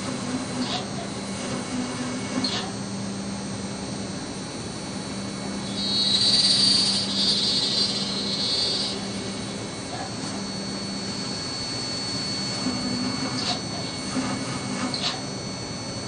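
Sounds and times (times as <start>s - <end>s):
machine spindle hum: 0.0s - 16.0s
drill cutting metal: 5.6s - 15.6s
steady high tone: 6.9s - 16.0s.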